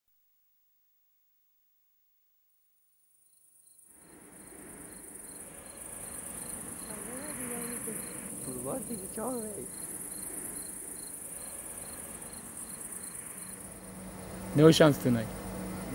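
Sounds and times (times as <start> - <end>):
crickets chirring: 3.0 - 15.9
faint pulsing chirp: 3.2 - 15.9
faint distant calls: 3.8 - 15.9.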